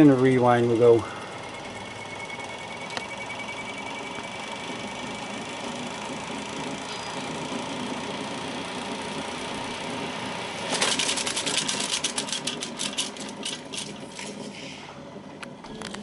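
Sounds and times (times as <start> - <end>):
tape deck rewinding whir: 0.0 - 16.0
tape end slapping reel: 10.6 - 14.5.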